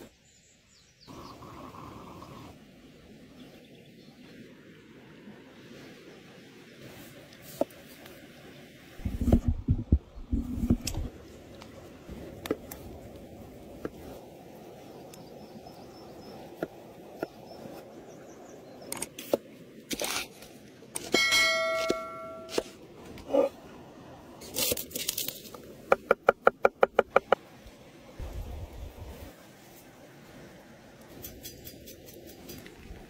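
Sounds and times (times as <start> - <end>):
short metallic ring: 21.1 - 22.6.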